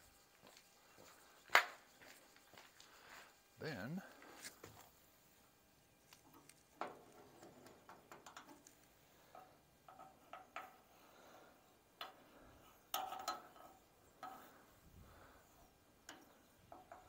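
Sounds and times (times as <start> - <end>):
marker clicks and taps on metal: 16.0 - 17.0.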